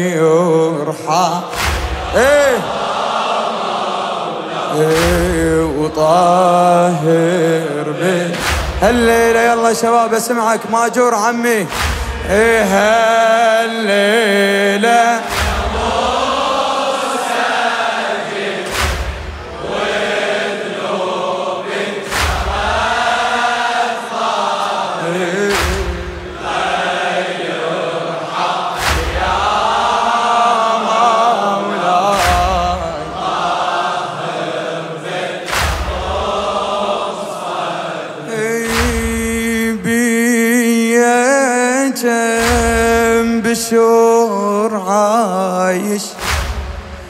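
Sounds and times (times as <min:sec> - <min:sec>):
held vocal drone: 0:00.0 - 0:47.0
men chanting in unison: 0:00.0 - 0:47.0
chest-beating strikes: 0:46.2 - 0:47.0.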